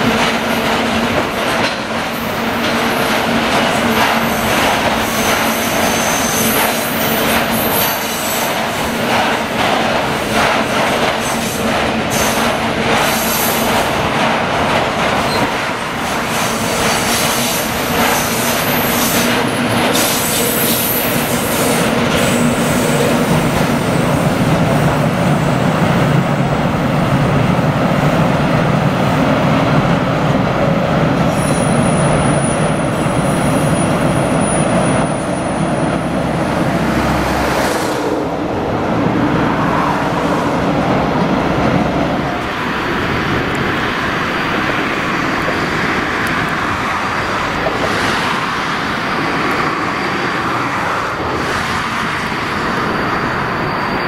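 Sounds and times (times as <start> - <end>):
freight train rumbling: 0.0 - 54.0
high-pitched wheel squeal: 52.8 - 54.0.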